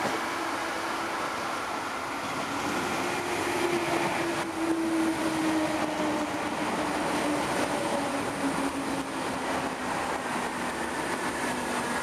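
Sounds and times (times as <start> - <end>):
electric train passing with whine: 0.0 - 12.0.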